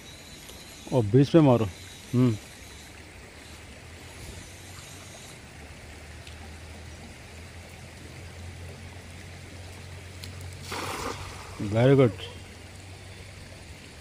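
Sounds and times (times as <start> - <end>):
shallow water flowing: 0.0 - 14.0.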